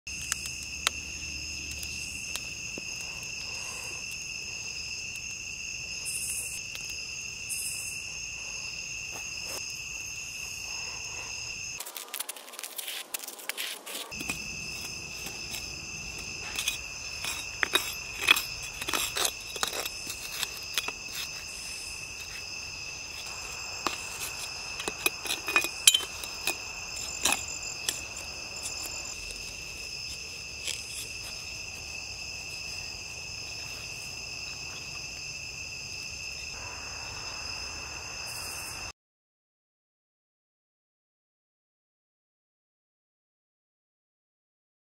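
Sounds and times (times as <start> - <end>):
insects trilling: 0.1 - 38.9
metal shovel scraping soil: 11.8 - 32.7.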